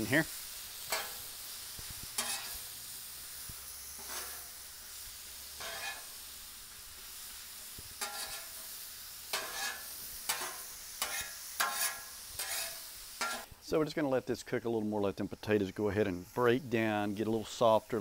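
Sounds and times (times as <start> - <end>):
food sizzling on a griddle: 0.0 - 18.0
metal spatula scraping griddle: 0.7 - 4.7, 5.4 - 6.3, 8.0 - 13.5.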